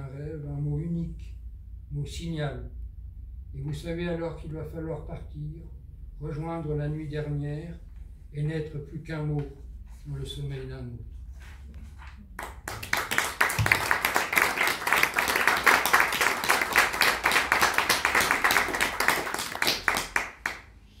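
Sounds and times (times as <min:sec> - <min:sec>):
audience applauding: 0:12.4 - 0:20.8.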